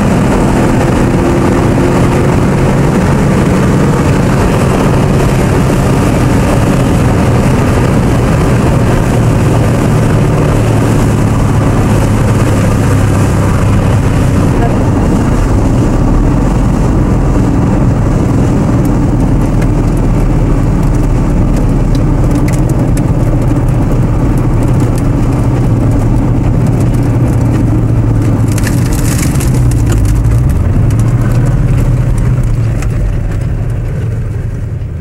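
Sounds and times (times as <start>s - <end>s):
car engine at speed: 0.0s - 35.0s
road and wind noise: 0.0s - 35.0s.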